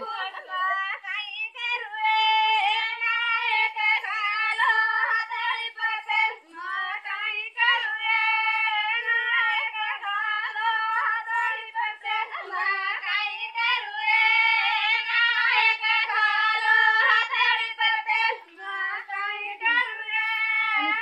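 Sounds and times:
women singing without instruments: 0:00.0 - 0:21.0.

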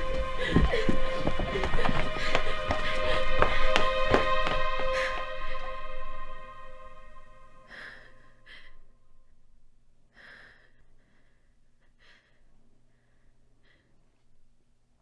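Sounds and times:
woman breathing and gasping: 0:00.0 - 0:06.6, 0:07.6 - 0:08.9, 0:10.1 - 0:14.0
low steady hum: 0:00.0 - 0:15.0.

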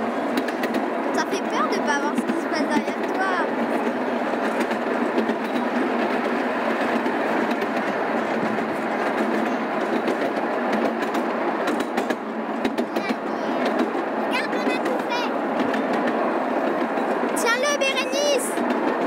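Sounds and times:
train car rumbling and rattling: 0:00.0 - 0:19.0
sharp clicks and knocks: 0:00.4 - 0:00.9, 0:04.3 - 0:17.4.

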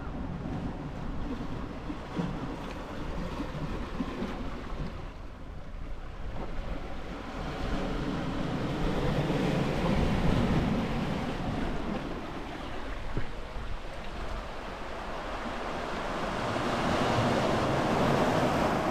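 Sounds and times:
sea waves washing on shore: 0:00.0 - 0:18.9
wind buffeting microphone: 0:00.0 - 0:18.9.

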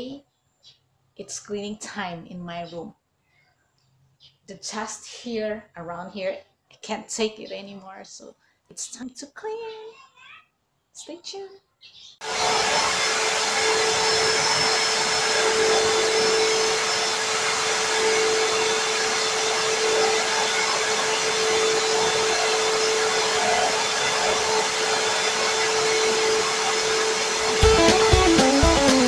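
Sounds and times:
vacuum cleaner whining: 0:12.2 - 0:29.0
vacuum nozzle on wooden floor: 0:12.2 - 0:29.0.

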